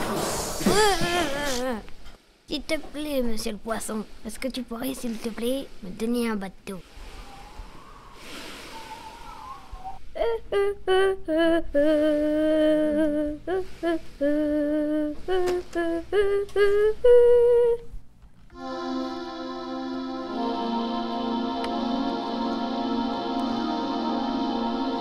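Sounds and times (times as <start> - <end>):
child humming: 0.6 - 1.9, 9.3 - 17.9
soft background music chord: 18.6 - 25.0.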